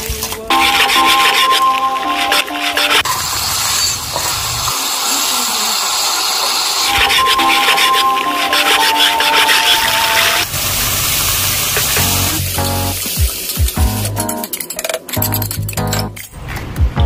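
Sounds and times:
background music: 0.0s - 3.1s, 6.9s - 10.4s, 11.9s - 17.0s
food sizzling in oil: 0.5s - 14.6s.

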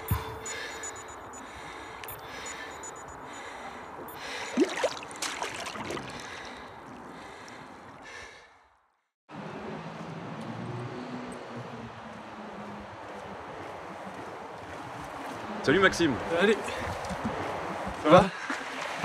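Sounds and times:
water lapping around kayak: 0.4s - 8.6s, 12.1s - 19.0s.

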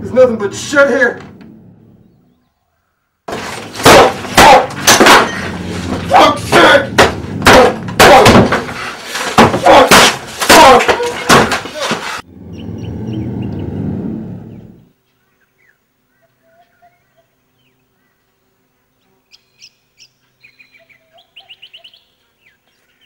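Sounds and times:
outdoor ambience: 0.0s - 23.0s
objects crashing and smashing: 3.3s - 12.2s.

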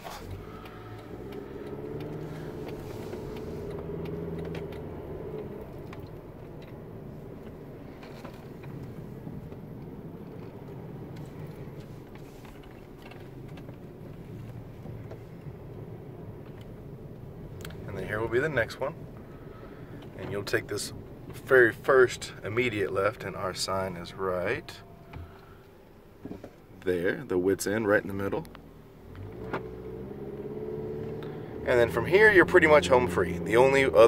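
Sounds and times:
car engine accelerating: 0.0s - 34.0s
tyre noise on road: 0.0s - 34.0s.

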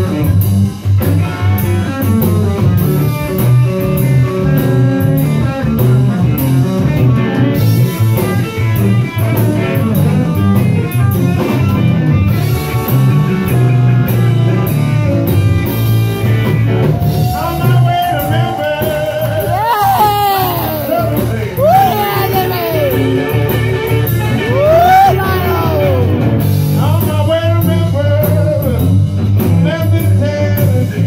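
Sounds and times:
bass line: 0.0s - 31.0s
drum kit: 0.0s - 31.0s
electric guitars: 0.0s - 31.0s
man singing: 17.3s - 26.2s, 26.8s - 31.0s.

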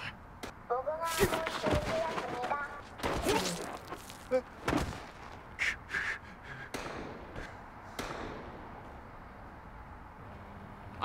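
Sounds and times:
sharp bangs: 6.6s - 9.5s.

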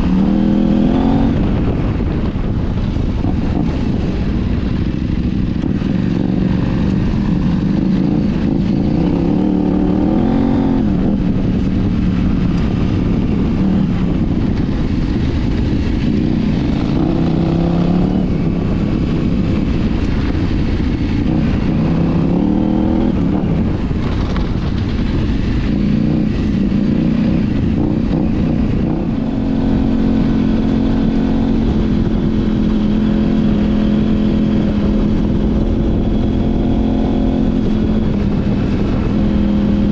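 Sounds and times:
motorcycle engine revving: 0.0s - 39.9s
wind and tyre noise: 0.0s - 39.9s.

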